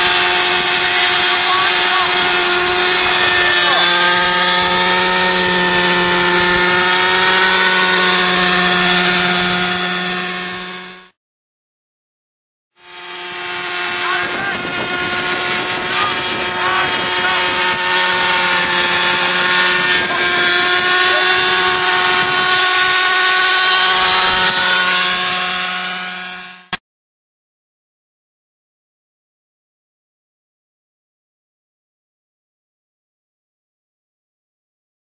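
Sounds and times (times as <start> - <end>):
model helicopter engine and rotor: 0.0 - 11.2, 12.8 - 26.8.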